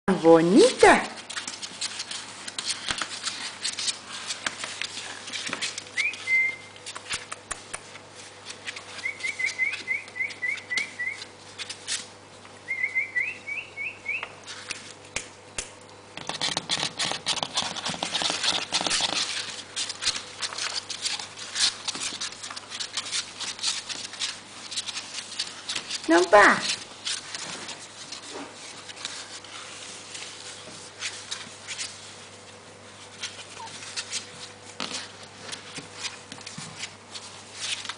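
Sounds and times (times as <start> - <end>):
puppies scuffling: 0.3 - 13.3, 16.1 - 37.9
puppies squeaking: 8.7 - 12.0.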